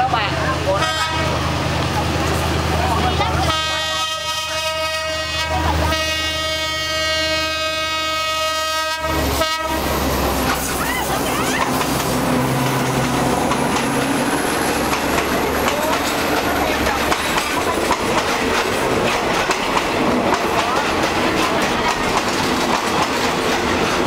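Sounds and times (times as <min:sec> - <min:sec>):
diesel locomotive engine running: 0:00.0 - 0:24.0
train wheels clacking over rail joints: 0:08.7 - 0:24.0.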